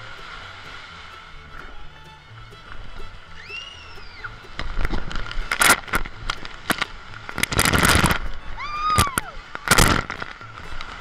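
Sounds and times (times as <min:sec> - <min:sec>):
water rushing and splashing: 0:00.0 - 0:11.0
rider whooping: 0:03.4 - 0:04.4, 0:08.6 - 0:09.4.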